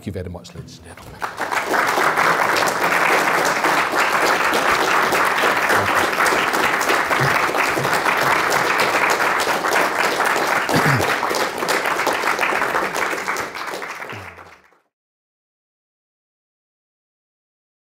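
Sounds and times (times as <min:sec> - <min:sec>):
audience applauding: 0:01.0 - 0:14.9.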